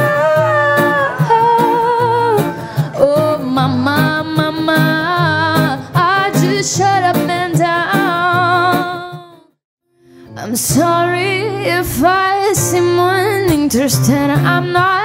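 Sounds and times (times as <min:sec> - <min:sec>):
strummed acoustic guitar: 0:00.0 - 0:09.5
woman singing: 0:00.0 - 0:09.6, 0:10.3 - 0:15.0.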